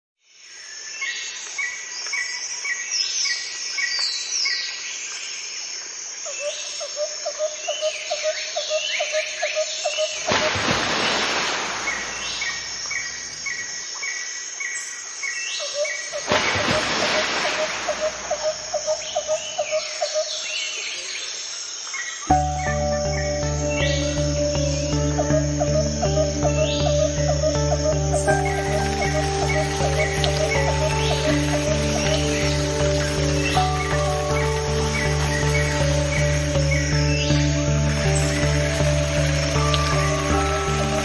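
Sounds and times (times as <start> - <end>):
birdsong chirps: 0.2 - 41.0
insect-like pulsing trill: 22.3 - 41.0
music: 22.3 - 41.0.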